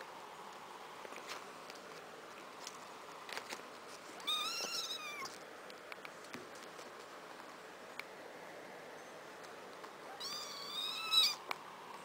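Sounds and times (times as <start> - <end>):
kittens scuffing on gravel: 0.6 - 7.9
kitten meowing: 4.2 - 5.3, 10.1 - 11.4.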